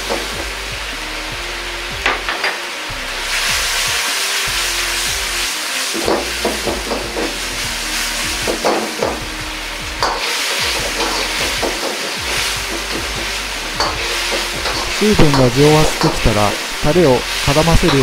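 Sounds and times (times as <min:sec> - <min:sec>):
gas burner running: 0:00.0 - 0:18.0
liquid boiling and sizzling in wok: 0:00.0 - 0:18.0
metal ladle knocking wok: 0:13.8 - 0:16.3.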